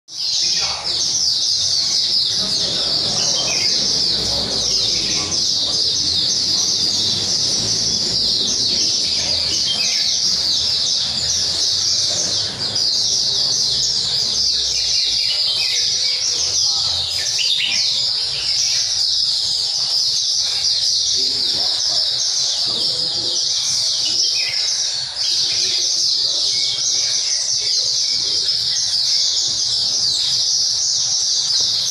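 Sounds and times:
songbirds chirping and twittering: 0:00.1 - 0:31.9.

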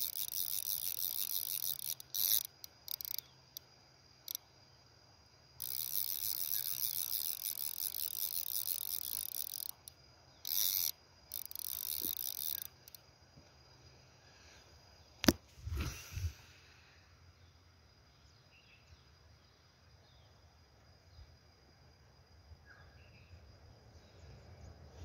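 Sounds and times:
fishing reel ratchet buzzing: 0:00.0 - 0:04.4, 0:05.6 - 0:13.0.

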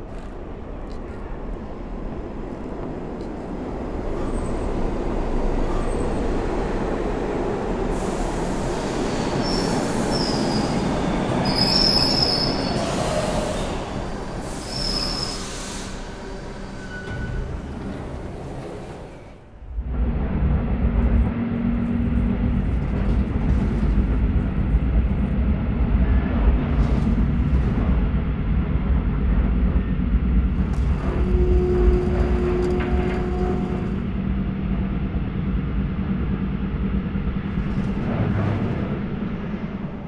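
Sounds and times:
train rumble: 0:00.0 - 0:40.0
train wheels squealing: 0:07.9 - 0:19.4.

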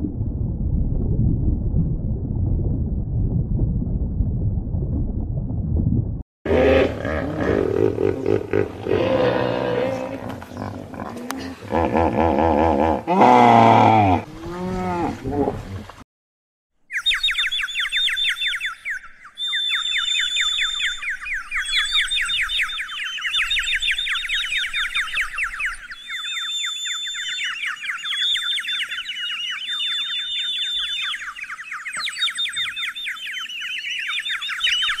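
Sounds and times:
falcon shrill calls: 0:25.2 - 0:35.0.

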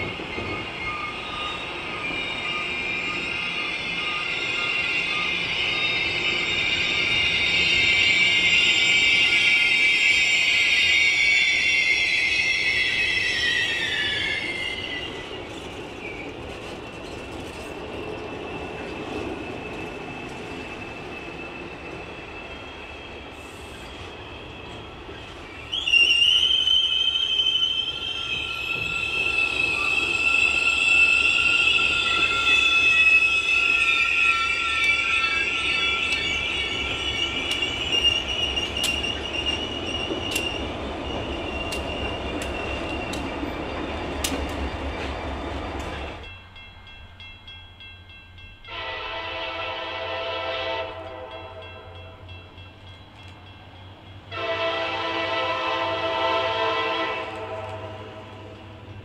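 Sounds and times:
train rolling rumble: 0:00.0 - 0:10.0, 0:11.5 - 0:26.0, 0:27.8 - 0:49.9
train wheels squealing on rail: 0:00.0 - 0:59.0.

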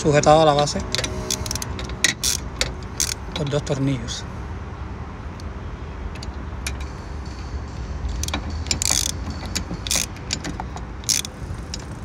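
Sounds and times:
low steady rumble: 0:00.0 - 0:12.0
hand ratchet clicking: 0:00.6 - 0:03.5, 0:06.1 - 0:12.0.

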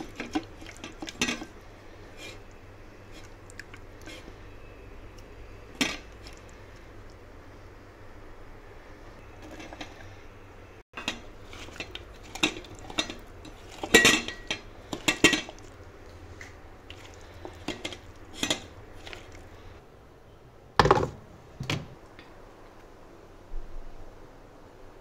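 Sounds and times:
steel bowl clinking: 0:00.0 - 0:02.5, 0:05.7 - 0:06.4, 0:11.0 - 0:15.8, 0:16.9 - 0:19.6.

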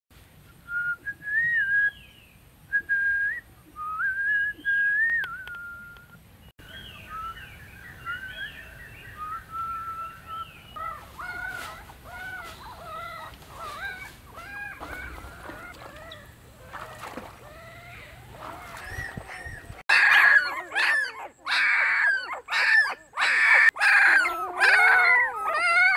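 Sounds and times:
slow whistled tune: 0:00.5 - 0:02.1, 0:02.7 - 0:06.2, 0:09.1 - 0:10.4
newborn puppies whimpering: 0:17.5 - 0:25.9.

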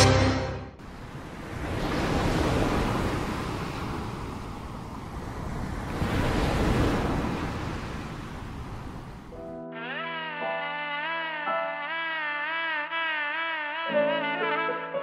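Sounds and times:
sea surf breaking on beach: 0:00.8 - 0:09.4.

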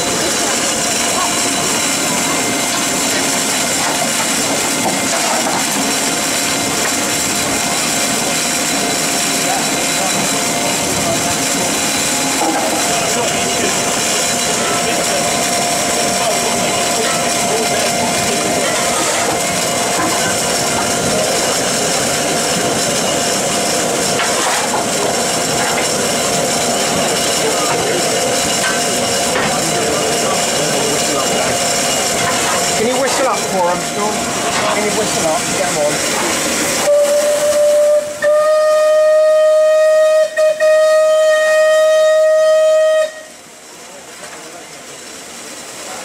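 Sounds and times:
steam hissing from safety valve: 0:00.0 - 0:46.0
steam whistle blast: 0:36.8 - 0:43.4.

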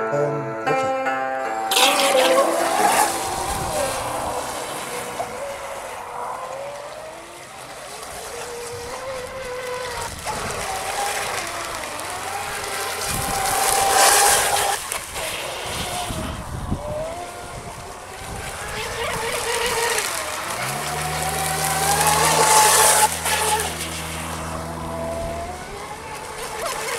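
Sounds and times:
model boat motor whining: 0:01.4 - 0:26.9
loud rushing noise: 0:01.6 - 0:06.6.

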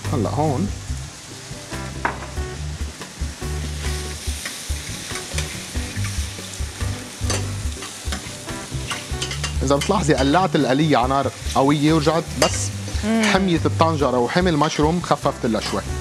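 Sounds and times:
mushrooms sizzling in a pot: 0:00.0 - 0:16.0
metal ladle scraping a pot: 0:08.8 - 0:10.0.

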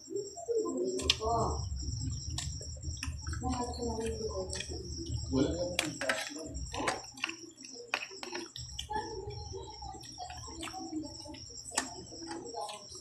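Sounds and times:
chewing clicks: 0:01.0 - 0:13.0.

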